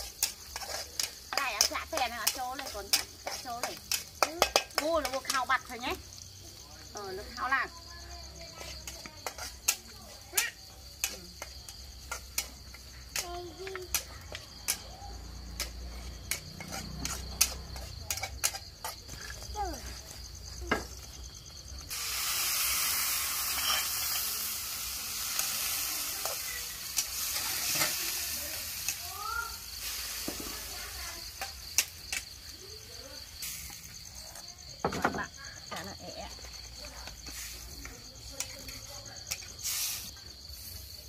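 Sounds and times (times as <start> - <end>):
loud frying sizzle: 0.0 - 41.0.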